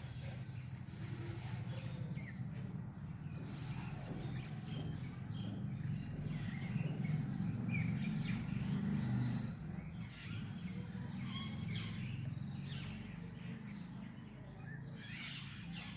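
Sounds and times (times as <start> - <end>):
birds chirping: 0.0 - 15.9.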